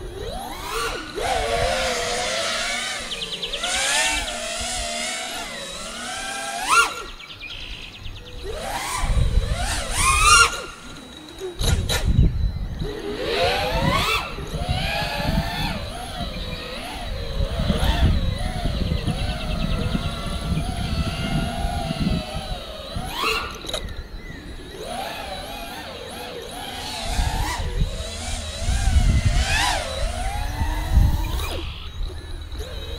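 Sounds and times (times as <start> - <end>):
drone motors whining: 0.0 - 32.9.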